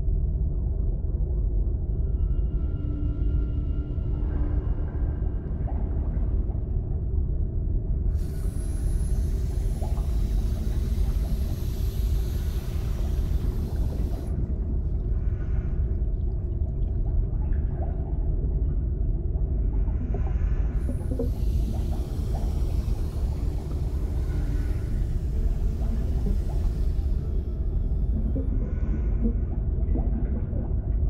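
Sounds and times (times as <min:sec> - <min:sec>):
underwater rumble of moving water: 0:00.0 - 0:31.0
hiss: 0:08.2 - 0:14.3, 0:20.8 - 0:28.0.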